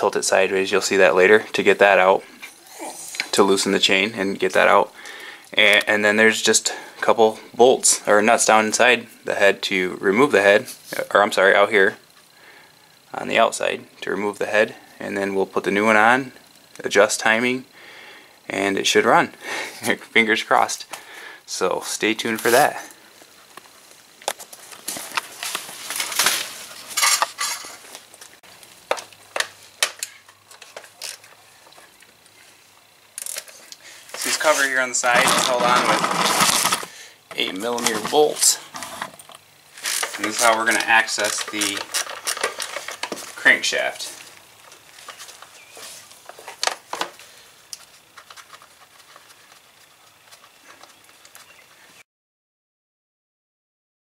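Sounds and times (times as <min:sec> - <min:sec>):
scraping and rattling handling noise: 0:23.5 - 0:31.4, 0:33.2 - 0:51.6.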